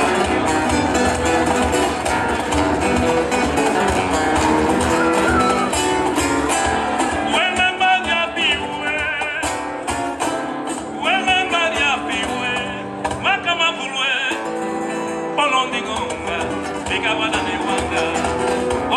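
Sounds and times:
steady drum beat: 0:00.0 - 0:10.1
acoustic and electric guitars: 0:00.0 - 0:18.9.

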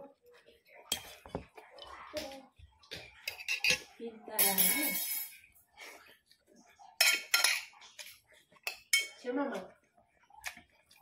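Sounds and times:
metal spoon clinking on ceramic bowl: 0:04.4 - 0:05.4.

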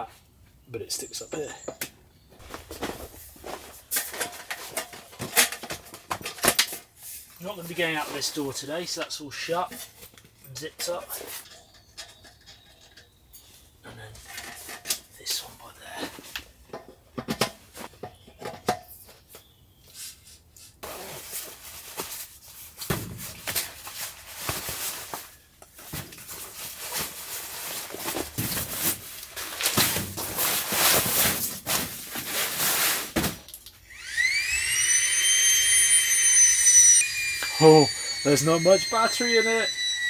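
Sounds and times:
bag and fabric rustling: 0:02.4 - 0:03.9
battery air pump whining: 0:33.8 - 0:40.0.

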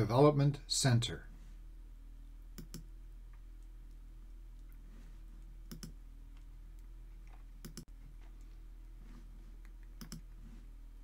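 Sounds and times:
low electrical hum: 0:00.0 - 0:11.0
computer mouse clicking: 0:02.6 - 0:02.9, 0:05.6 - 0:06.0, 0:07.6 - 0:07.9, 0:09.6 - 0:10.3.

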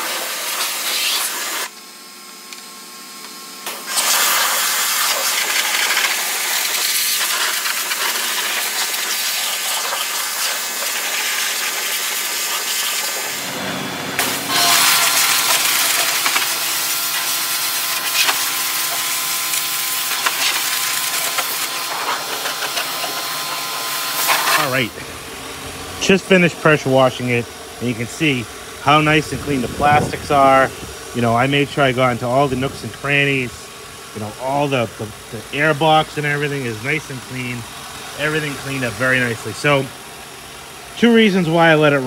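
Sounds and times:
pressure washer spray hissing: 0:00.0 - 0:01.7, 0:03.7 - 0:25.2, 0:32.2 - 0:40.4.

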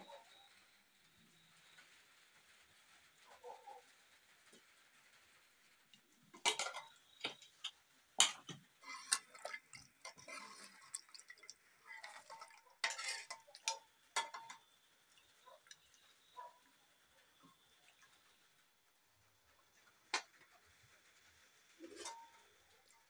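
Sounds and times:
spoon clinking against metal pots: 0:06.3 - 0:16.6.

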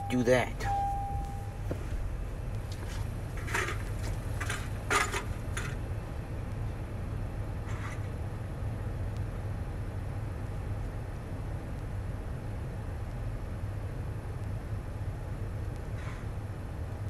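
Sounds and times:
knocks and rustles in truck cabin: 0:00.0 - 0:05.8
steady low rumble: 0:00.0 - 0:07.6.

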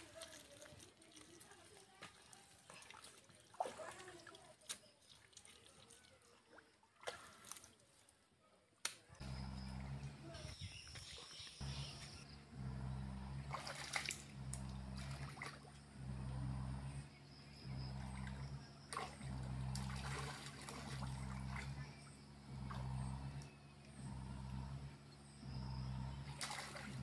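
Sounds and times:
muddy water splashing: 0:00.0 - 0:27.0
low hum: 0:09.1 - 0:27.0.

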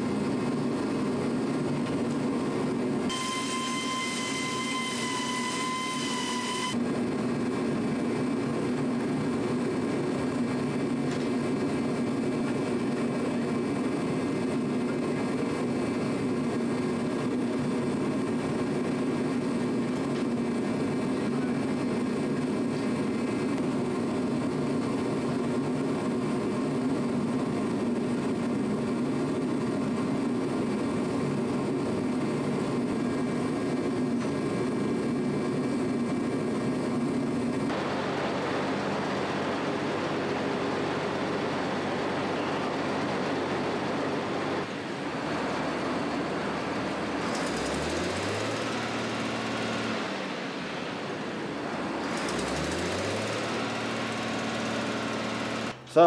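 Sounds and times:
machine running: 0:02.6 - 0:06.8, 0:37.4 - 0:56.0
short rising whines: 0:03.1 - 0:06.8, 0:37.7 - 0:56.0.

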